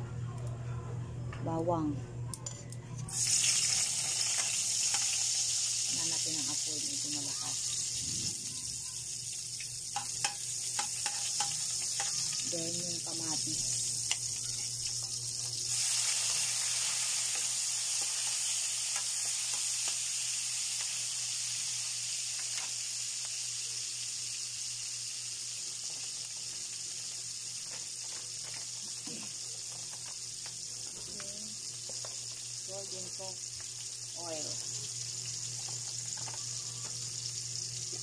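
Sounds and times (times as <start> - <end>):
low steady hum: 0.0 - 3.1
vegetables sizzling in oil: 3.1 - 38.0.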